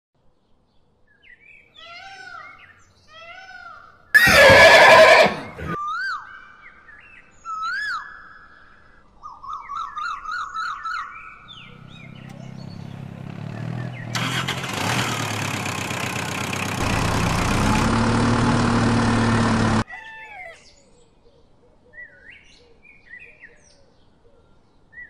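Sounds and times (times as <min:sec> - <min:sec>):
horse neighing and whinnying: 0:04.2 - 0:05.8.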